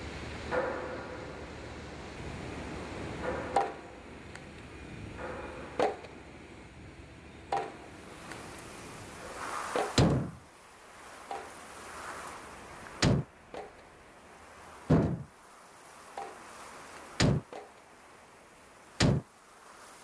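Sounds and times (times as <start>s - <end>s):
wind-like hiss: 0.0s - 20.0s
axe chopping wood: 13.0s - 13.7s, 17.2s - 17.7s, 19.0s - 19.3s.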